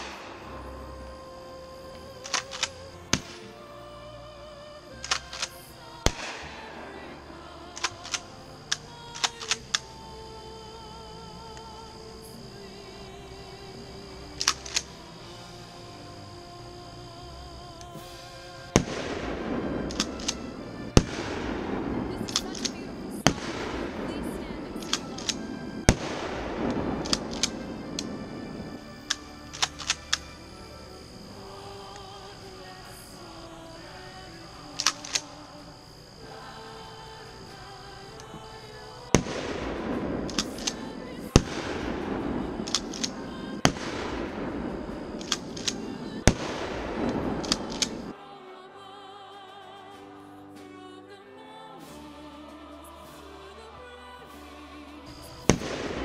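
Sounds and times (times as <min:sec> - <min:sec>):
shotgun shots: 0:18.8 - 0:30.0, 0:39.2 - 0:48.1
shotgun shots with crackling tail: 0:39.2 - 0:48.1
small pops: 0:45.2 - 0:48.1.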